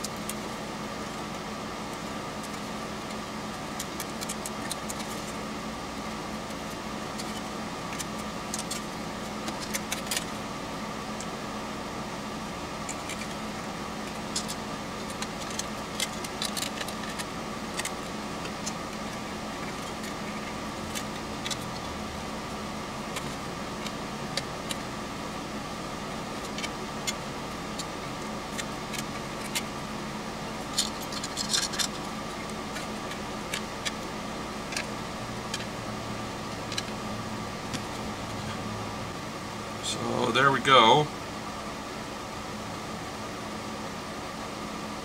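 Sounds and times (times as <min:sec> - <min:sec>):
steady background hum: 0:00.0 - 0:45.0
screwdriver and screws clinking: 0:30.7 - 0:32.1.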